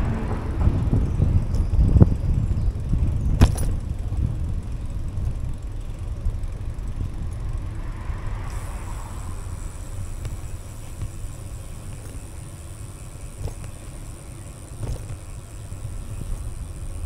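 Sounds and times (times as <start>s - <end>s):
road noise: 0.0s - 17.0s
wind on microphone: 0.0s - 17.0s.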